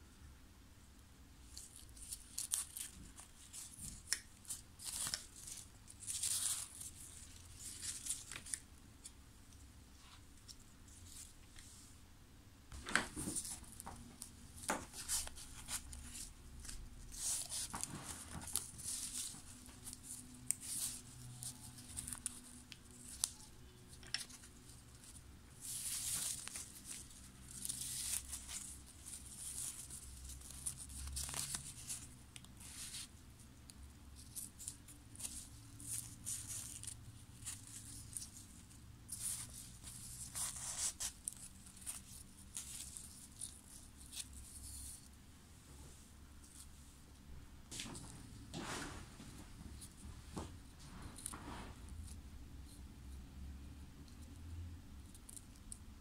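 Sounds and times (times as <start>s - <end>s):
ribbon rustling on plastic headband: 1.4s - 11.8s, 12.7s - 45.2s.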